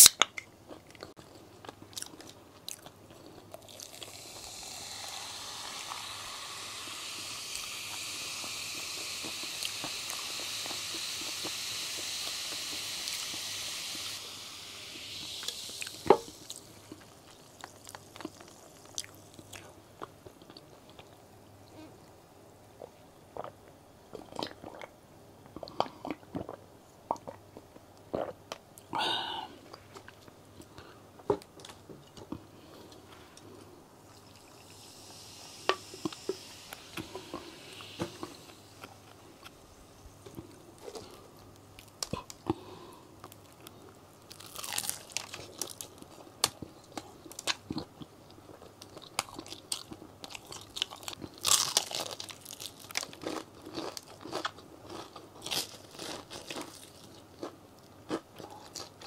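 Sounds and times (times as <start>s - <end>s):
crunching fried chicken: 40.8s - 59.0s.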